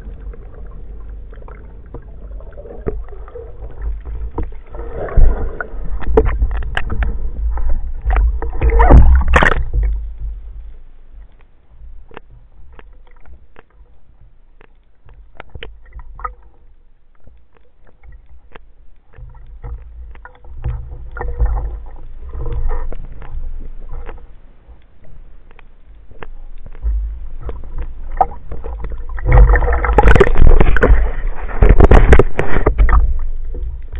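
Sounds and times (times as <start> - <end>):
sharp crackles: 0.0 - 33.9
underwater rumble: 0.0 - 33.9
water splashing and churning: 0.0 - 33.9
bubble clicks: 26.2 - 31.0.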